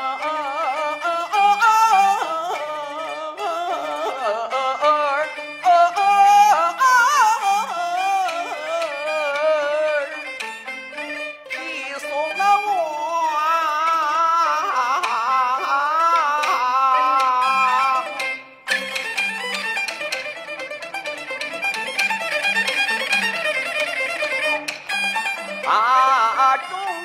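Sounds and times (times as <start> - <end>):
man singing opera aria: 0.0 - 10.3, 11.5 - 18.4, 25.6 - 27.0
bowed fiddle: 0.0 - 27.0
opera ensemble playing: 0.0 - 27.0.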